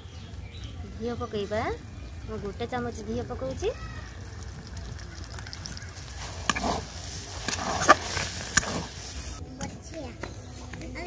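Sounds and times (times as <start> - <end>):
ladle stirring thick dough: 1.3 - 9.4
ladle clinking and scraping pan: 5.9 - 9.4.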